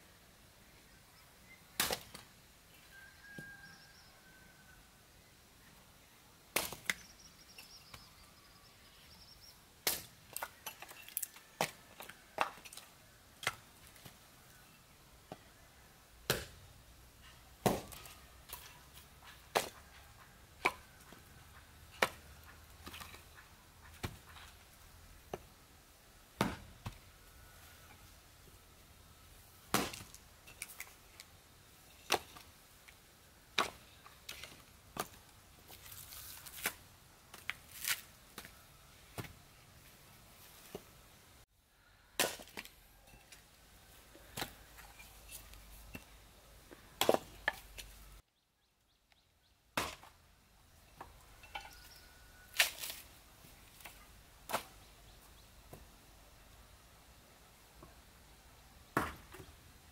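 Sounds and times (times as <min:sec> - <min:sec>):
machete chopping wood: 0:06.6 - 0:07.0, 0:16.3 - 0:16.6, 0:17.6 - 0:18.1, 0:26.4 - 0:27.0, 0:29.7 - 0:30.2, 0:42.2 - 0:42.7, 0:49.8 - 0:50.1, 0:59.0 - 0:59.3.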